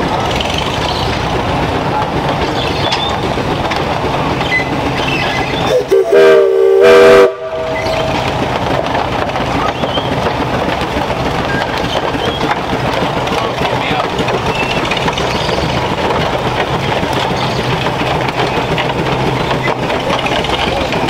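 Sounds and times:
steam engine running on gravel: 0:00.0 - 0:21.0
steam whistle blast: 0:05.7 - 0:08.0.

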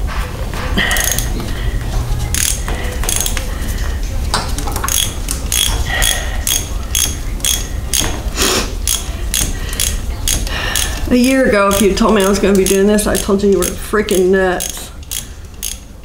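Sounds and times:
socket ratchet clicking: 0:01.0 - 0:01.3, 0:02.3 - 0:03.4, 0:04.9 - 0:08.1, 0:08.8 - 0:11.1, 0:11.7 - 0:15.9.

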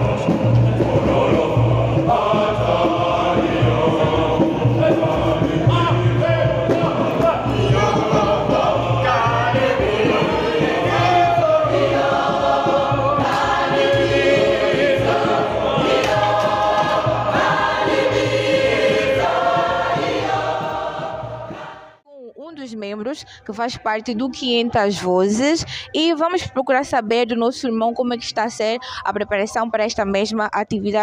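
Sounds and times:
gospel choir singing: 0:00.0 - 0:22.0.

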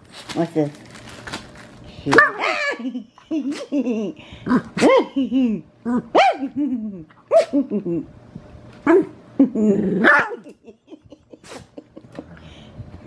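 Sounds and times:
dog barking: 0:06.1 - 0:06.6, 0:10.0 - 0:10.4
dog growling: 0:08.9 - 0:10.4.

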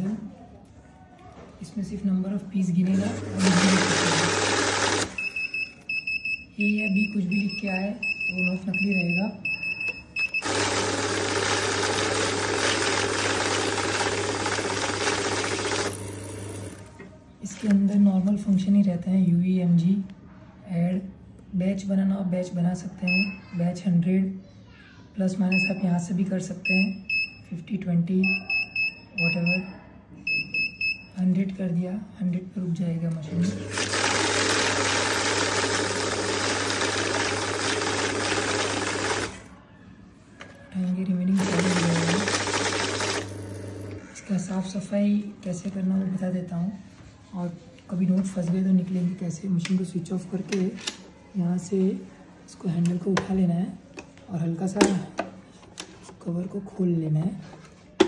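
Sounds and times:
banknote counter motor hum: 0:03.3 - 0:05.2, 0:10.4 - 0:16.9, 0:33.6 - 0:39.4, 0:41.4 - 0:44.1
low motor hum: 0:43.2 - 0:44.2.

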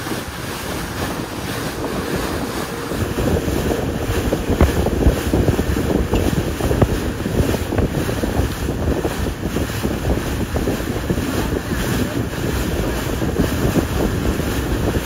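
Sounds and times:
seawater rushing: 0:00.0 - 0:15.0
wind buffeting microphone: 0:00.0 - 0:15.0.

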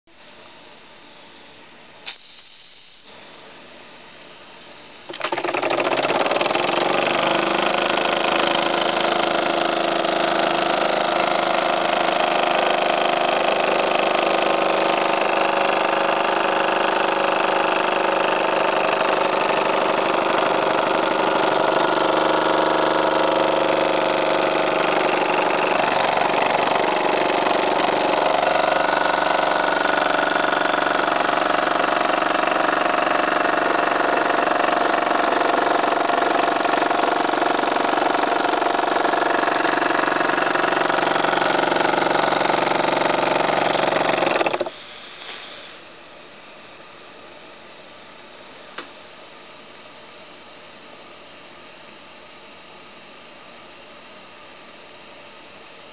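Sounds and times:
model steam engine running: 0:05.1 - 0:44.8.

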